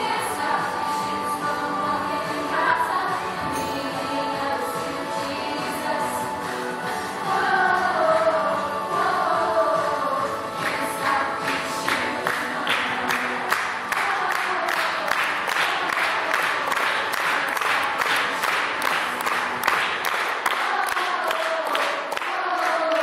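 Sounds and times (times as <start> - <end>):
children's choir singing: 0.0 - 23.0
people clapping in time: 10.6 - 23.0.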